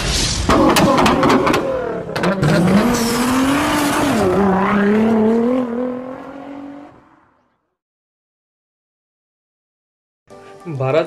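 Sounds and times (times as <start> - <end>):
sharp swishing hits: 0.0 - 1.5
sports car engine revving: 1.2 - 7.0.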